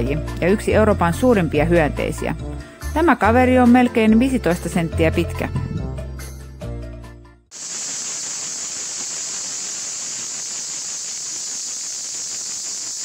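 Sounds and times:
background music: 0.0 - 7.5
cicadas buzzing: 7.5 - 13.0.

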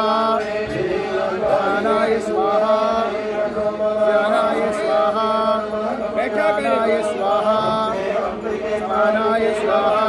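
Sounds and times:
person chanting mantras: 0.0 - 10.0.

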